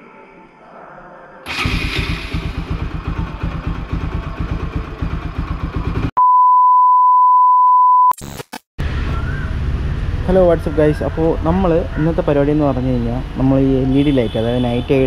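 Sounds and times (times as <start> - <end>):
motorcycle engine running: 1.5 - 6.1
high-pitched test-tone beep: 6.2 - 8.2.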